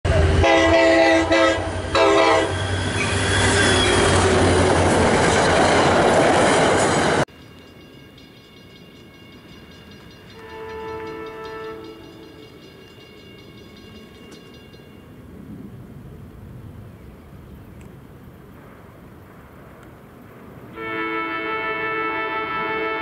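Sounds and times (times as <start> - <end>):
train passing at speed: 0.0 - 23.0
train horn chord: 0.1 - 2.6, 10.3 - 12.5, 20.7 - 23.0
distant train horn: 0.1 - 4.6, 10.3 - 14.1, 20.7 - 23.0.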